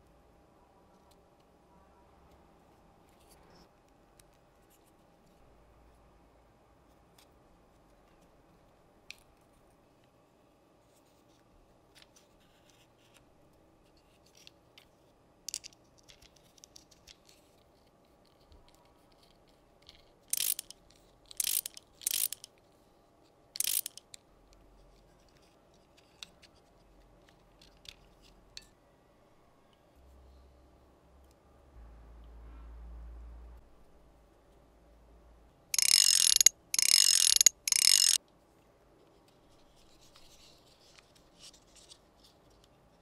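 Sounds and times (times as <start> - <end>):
screwdriver grinding screw into wood: 20.3 - 20.7, 21.3 - 22.5, 23.6 - 24.0, 35.8 - 38.2
wooden parts clicking and tapping: 23.6 - 24.2, 35.8 - 38.2.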